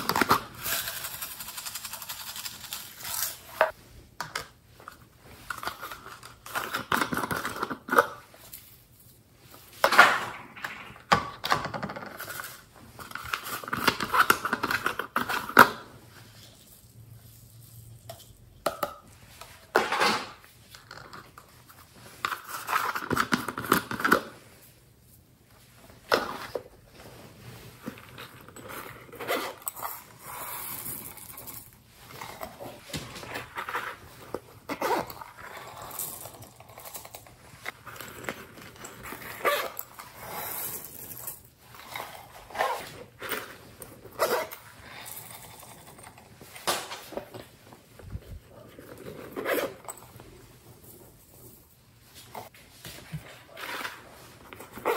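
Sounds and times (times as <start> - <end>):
beads rattling into glass dish: 0.5 - 3.6.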